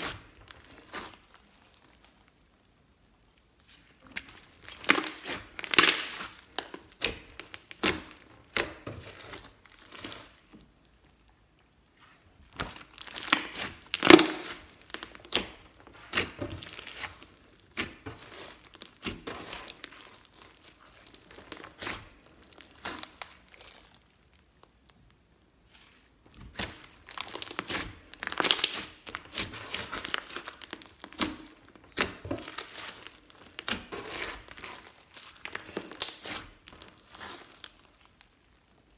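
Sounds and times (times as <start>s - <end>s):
slime squishing: 0.0s - 38.9s
slime air pockets popping: 12.5s - 20.5s.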